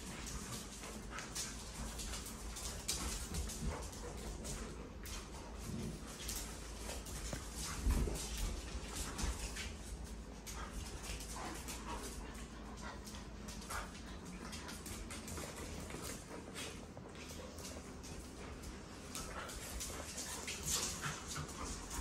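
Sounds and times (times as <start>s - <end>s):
dogs scuffling on hard floor: 0.0s - 22.0s.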